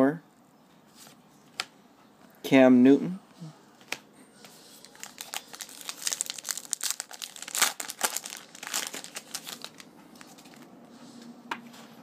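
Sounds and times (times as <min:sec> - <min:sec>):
card pack wrapper crinkling: 0:04.8 - 0:10.6.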